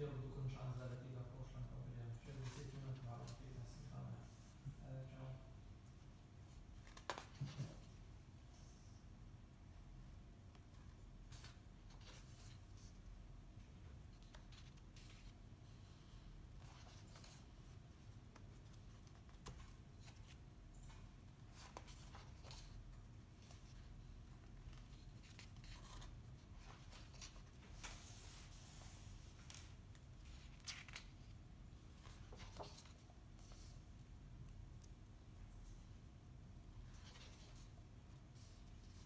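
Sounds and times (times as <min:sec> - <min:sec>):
book pages rustling and turning: 0:06.5 - 0:08.0, 0:10.5 - 0:13.0, 0:14.1 - 0:15.4, 0:16.6 - 0:33.8, 0:36.8 - 0:37.8.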